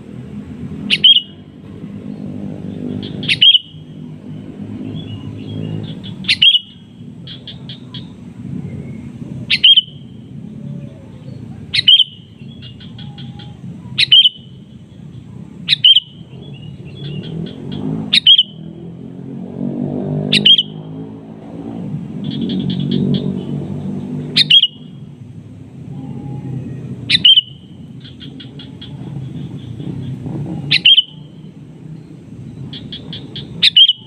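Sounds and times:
bird chattering: 0.8s - 1.4s, 2.9s - 3.9s, 4.9s - 8.2s, 9.5s - 10.1s, 10.9s - 18.7s, 22.2s - 23.6s, 24.3s - 25.0s, 27.0s - 31.5s, 32.6s - 34.0s
bird calling sharply: 0.9s - 1.4s, 3.0s - 3.8s, 5.0s - 8.1s, 9.5s - 10.1s, 11.7s - 14.6s, 15.7s - 16.2s, 17.0s - 18.6s, 20.3s - 20.8s, 24.3s - 24.9s, 27.1s - 31.4s, 32.7s - 34.0s.

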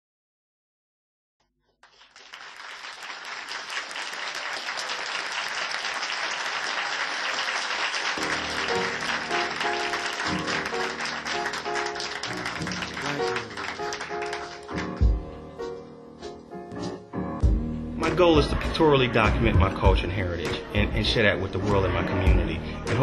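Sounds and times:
crowd applauding: 1.8s - 15.2s
instrumental music: 8.2s - 23.0s.

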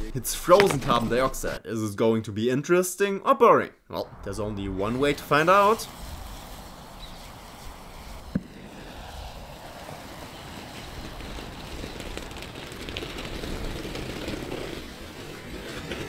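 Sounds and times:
thermite burning with rushing hiss: 4.1s - 16.0s.

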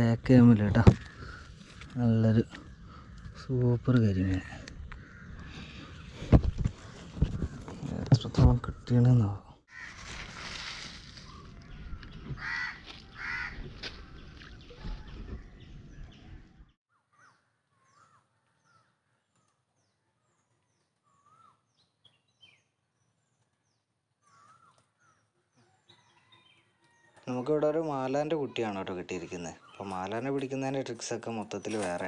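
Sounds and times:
crows cawing: 1.0s - 3.4s, 4.5s - 6.2s, 9.7s - 10.4s, 12.3s - 14.3s, 24.2s - 25.2s
small birds chirping: 10.6s - 32.0s
bird warbling calls: 11.1s - 18.9s, 24.2s - 25.2s.

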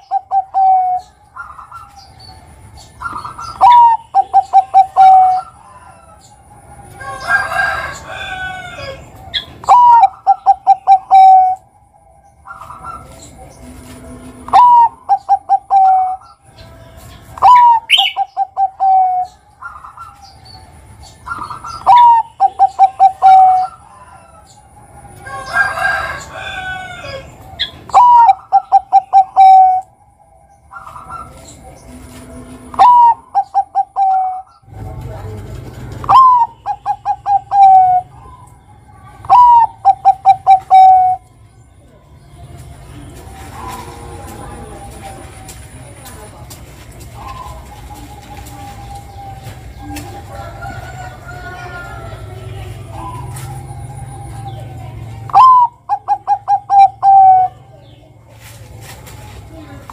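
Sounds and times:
dove cooing: 0.0s - 2.1s, 2.9s - 6.2s, 6.8s - 11.7s, 12.4s - 16.4s, 17.4s - 20.4s, 21.1s - 30.0s, 30.6s - 35.0s, 35.7s - 41.3s, 43.1s - 46.3s, 47.1s - 57.8s
high bird chirping: 0.0s - 13.7s, 14.4s - 31.9s, 36.0s - 42.3s.

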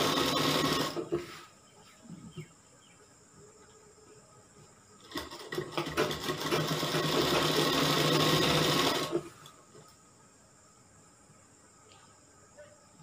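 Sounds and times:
sewing machine stitching: 0.0s - 1.2s, 5.0s - 9.3s.

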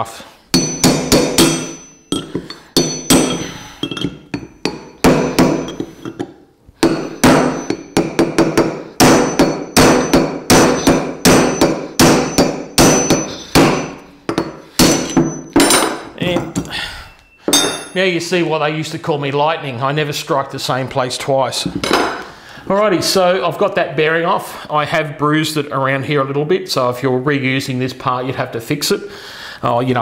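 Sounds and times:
hammer blows on metal tool: 6.8s - 16.6s.

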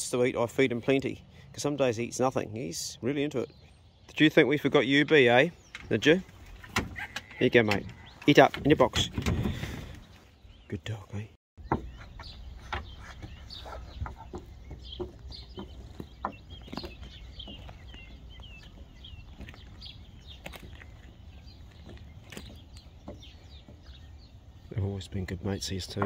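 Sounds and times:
birds chirping: 0.0s - 26.0s
outdoor background noise: 0.0s - 26.0s.

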